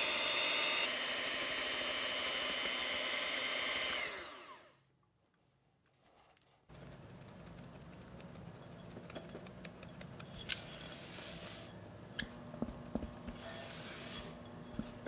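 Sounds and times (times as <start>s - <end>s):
spatula scraping glass bowl: 10.2s - 11.8s, 13.2s - 15.0s.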